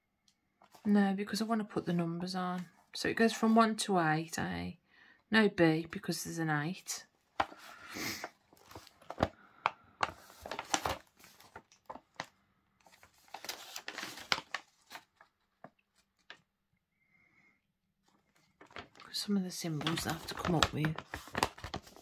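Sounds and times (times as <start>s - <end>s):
paper rustling and crinkling: 7.3s - 16.4s, 18.0s - 22.0s.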